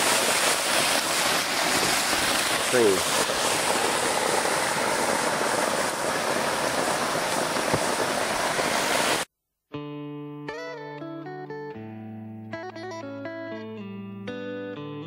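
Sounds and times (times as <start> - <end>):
waterfall rushing: 0.0 - 9.3.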